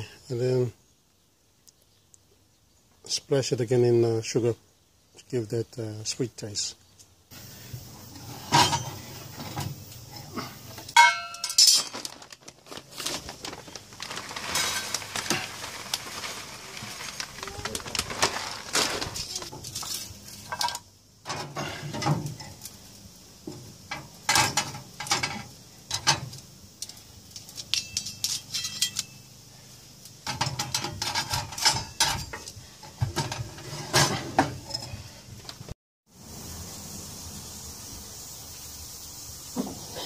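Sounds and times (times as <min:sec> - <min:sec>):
metal clinks and clatter: 0:27.3 - 0:29.2
metal drawer sliding shut: 0:33.2 - 0:34.7.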